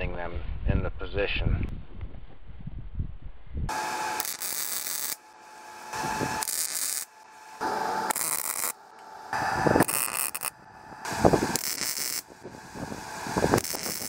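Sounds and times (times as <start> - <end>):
welder arc crackling: 3.7 - 14.0.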